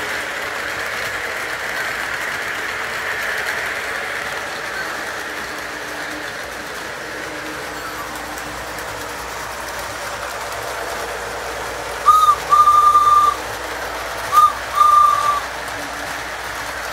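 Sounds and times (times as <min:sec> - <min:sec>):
model train rolling clatter: 0:00.0 - 0:16.9
train signal horn: 0:12.0 - 0:13.4, 0:14.3 - 0:16.0.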